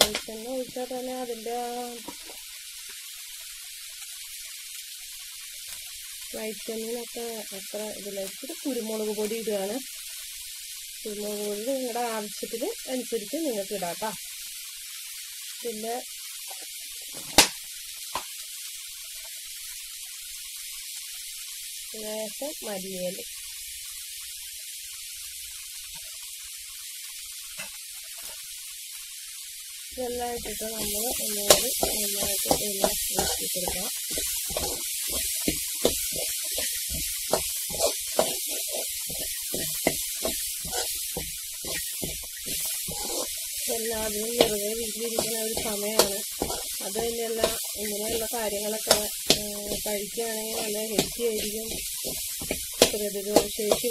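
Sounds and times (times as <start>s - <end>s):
steady hiss: 0.0s - 53.9s
spoon scraping a metal bowl: 30.8s - 41.0s, 41.6s - 43.4s, 45.2s - 46.8s.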